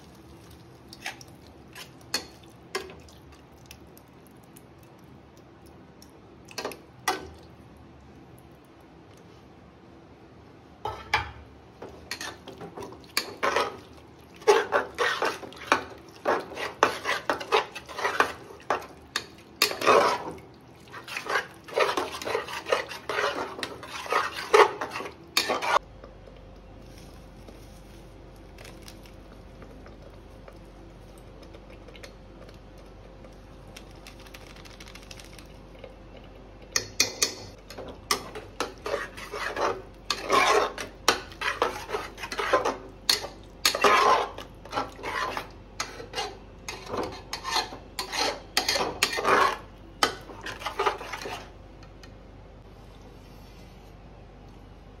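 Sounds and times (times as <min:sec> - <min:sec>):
faint steady hum: 0:00.0 - 0:55.0
metal spoon scraping cooking pot: 0:21.0 - 0:25.8, 0:37.0 - 0:51.5.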